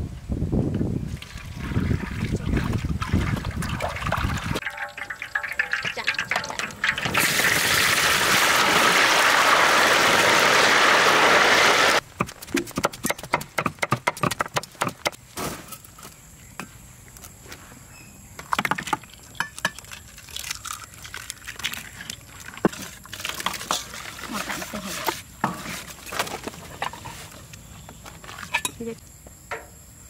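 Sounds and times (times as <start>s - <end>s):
rapid knife chopping: 12.2s - 15.2s.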